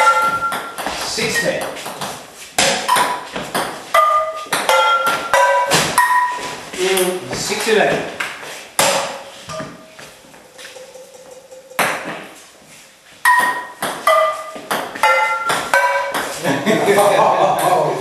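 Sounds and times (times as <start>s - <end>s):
ball hit by frying pans pinging: 0.0s - 6.5s, 8.8s - 9.9s, 10.5s - 12.4s, 13.2s - 16.4s.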